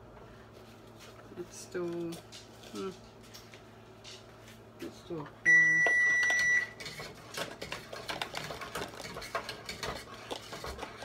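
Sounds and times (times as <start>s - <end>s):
electronic appliance beep: 5.4s - 6.8s.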